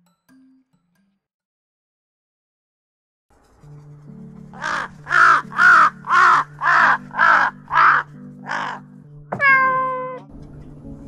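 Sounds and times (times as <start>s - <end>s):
crows cawing: 4.6s - 9.0s.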